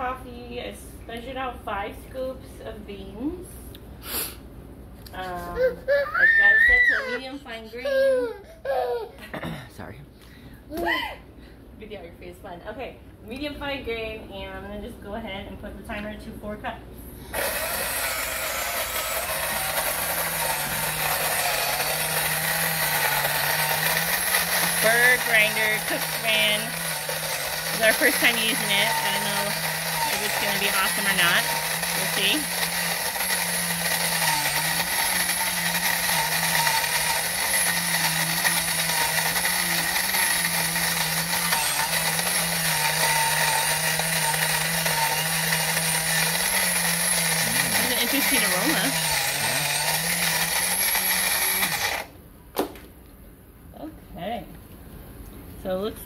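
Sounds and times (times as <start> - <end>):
coffee grinder grinding beans: 17.3 - 52.1.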